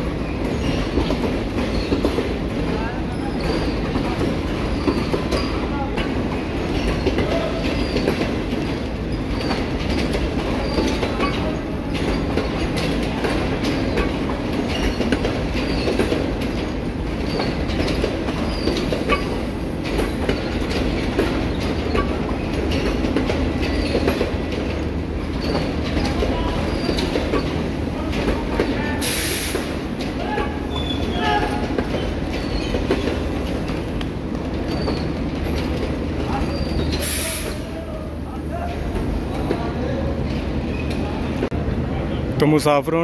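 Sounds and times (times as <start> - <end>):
train wheels rumbling on rails: 0.0 - 43.0
wheels clicking over rail joints: 0.2 - 41.5
faint wheel squeals: 2.8 - 5.8, 6.6 - 8.2, 9.1 - 12.8, 13.6 - 16.2, 17.2 - 19.5, 25.4 - 33.1, 34.6 - 35.6, 36.3 - 38.0.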